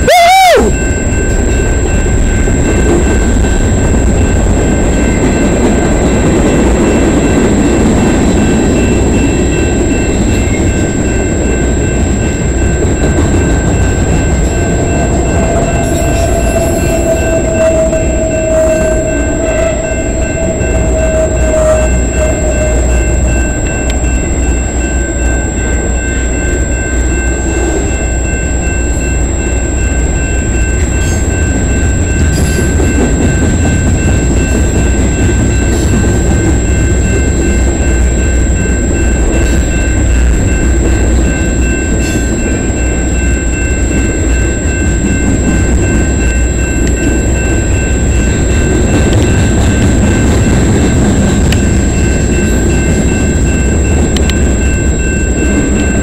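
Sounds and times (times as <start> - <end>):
train wheels rumbling on rail: 0.0 - 56.0
wheel squeal: 15.2 - 23.5.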